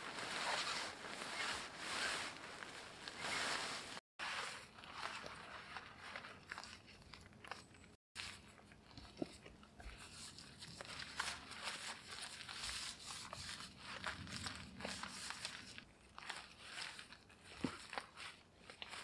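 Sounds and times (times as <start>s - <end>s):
tarp rustling and crinkling: 0.0s - 7.6s, 9.8s - 19.0s
small scrapes and crunches: 0.0s - 19.0s.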